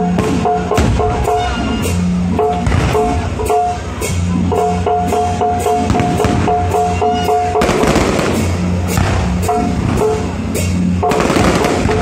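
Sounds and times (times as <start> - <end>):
music with steady beat: 0.0 - 12.0
crackling fireworks: 5.9 - 10.4, 11.0 - 12.0.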